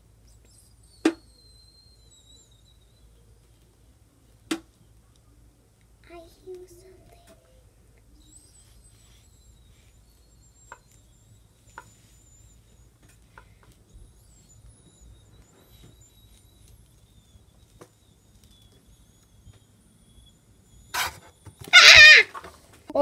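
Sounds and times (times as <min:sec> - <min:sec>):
puppets clicking and tapping: 0:21.6 - 0:22.6.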